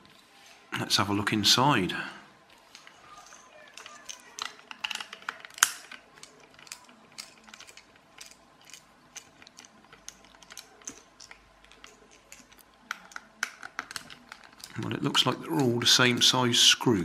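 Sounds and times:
screwdriver clicking on small screws: 2.7 - 14.8.

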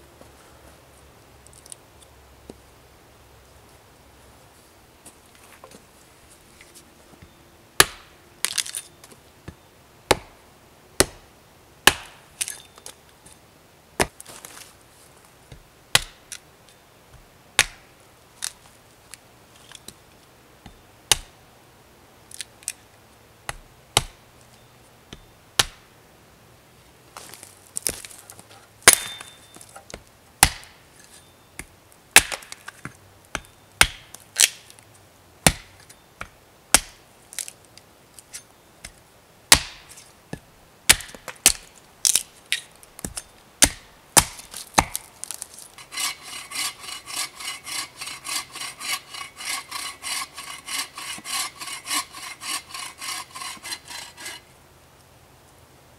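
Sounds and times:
hatchet chopping wood: 7.8 - 8.7, 10.1 - 10.4, 11.0 - 11.2, 11.9 - 12.5, 15.5 - 16.3, 17.6 - 17.8, 20.7 - 21.3, 23.5 - 24.2, 25.6 - 25.8, 28.8 - 30.8, 31.6 - 34.6, 35.4 - 37.0, 38.8 - 40.0, 40.9 - 42.3, 43.0 - 54.0
wood cracking: 40.9 - 46.1.

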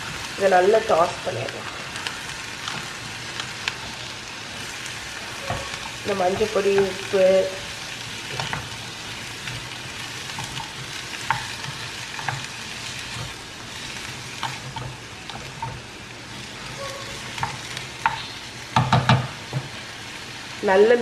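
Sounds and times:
vegetables sizzling in hot oil: 0.0 - 21.0
spatula knocking against pan: 18.8 - 19.3.

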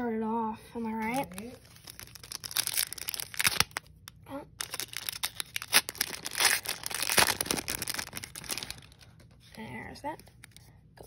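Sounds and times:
foil wrapper tearing and crinkling: 1.0 - 9.3.

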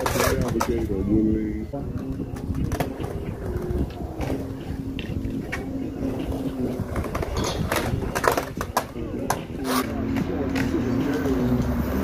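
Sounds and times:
skateboard wheels rolling on concrete: 0.0 - 12.0
skateboard clacks: 1.9 - 10.9.

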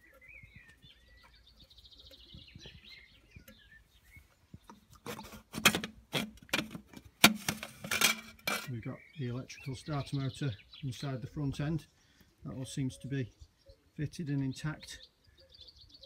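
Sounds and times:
faint bird chirping: 0.0 - 5.4, 8.6 - 16.0
metal scraping and clinking: 5.1 - 8.8.

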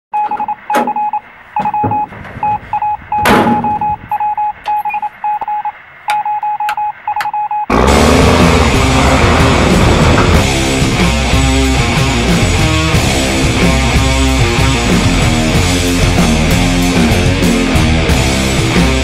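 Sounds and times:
electronic warning beeps: 0.2 - 7.7
loud thump: 3.2 - 4.0, 9.0 - 10.5
guitar-driven music: 7.7 - 19.0.

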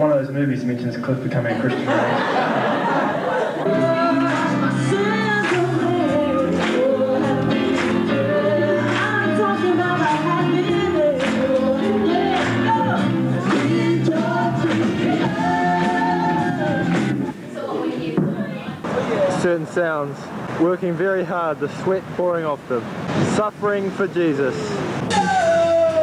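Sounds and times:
person singing lead vocal: 3.4 - 18.2, 24.7 - 26.0
rock band playing: 3.6 - 17.3.

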